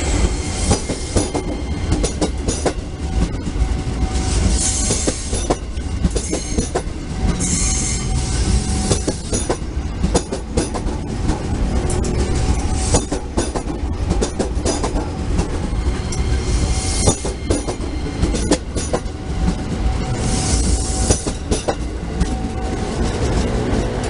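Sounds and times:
train rumbling past: 0:00.0 - 0:24.0
wheels clicking over rail joints: 0:08.9 - 0:15.6.

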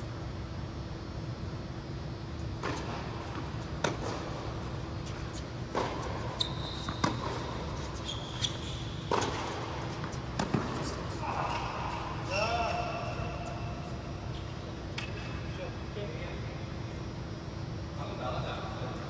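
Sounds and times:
steady hall hum: 0:00.0 - 0:19.0
sneakers squeaking on court: 0:02.4 - 0:15.4
tennis ball bouncing on court: 0:02.5 - 0:12.0.

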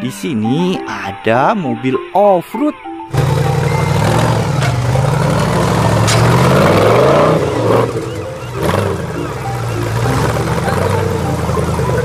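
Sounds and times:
buggy engine revving: 0:03.1 - 0:12.0.

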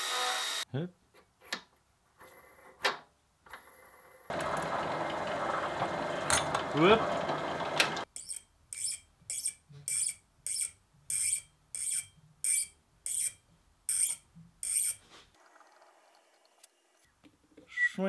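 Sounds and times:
drill press running: 0:04.3 - 0:08.0
tap squeaking cutting threads: 0:08.2 - 0:15.0.

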